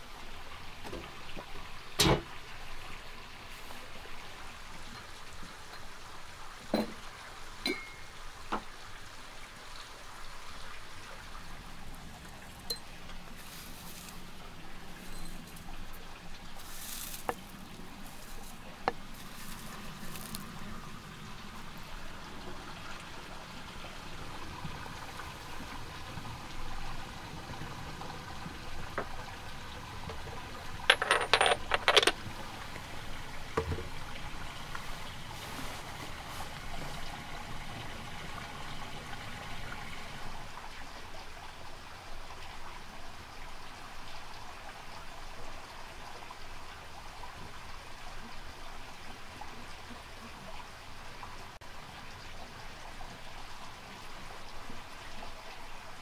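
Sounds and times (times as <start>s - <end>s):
steady soft hiss: 10.2s - 40.4s
hard objects clinking: 30.9s - 32.2s.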